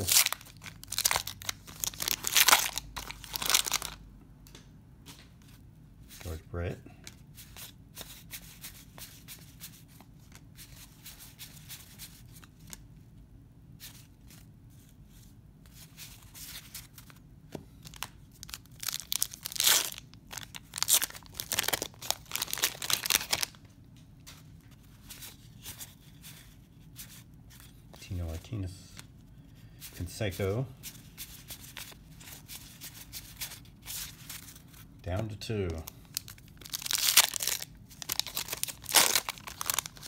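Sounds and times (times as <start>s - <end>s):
paper wrapper tearing and crinkling: 0.0s - 4.0s, 17.9s - 23.6s, 36.1s - 40.0s.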